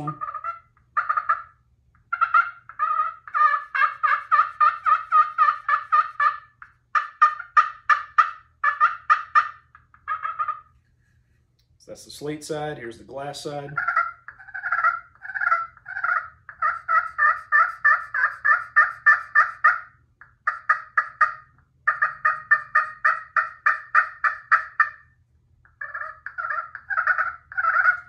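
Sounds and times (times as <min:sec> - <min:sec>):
turkey call yelps: 0:00.0 - 0:10.7, 0:13.7 - 0:28.0.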